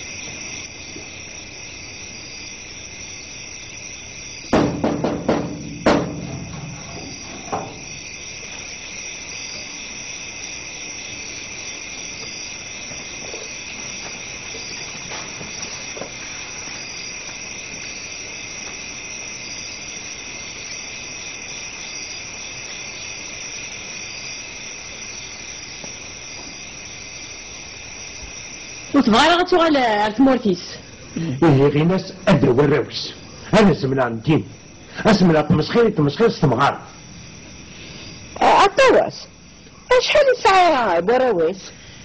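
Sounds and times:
crickets chirping: 0.0s - 42.0s
short knock: 4.5s - 7.8s.

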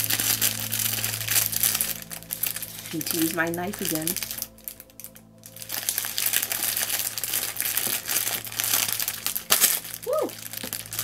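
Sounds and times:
cellophane crinkling and crackling: 0.0s - 11.0s
knife cutting cellophane: 5.8s - 11.0s.

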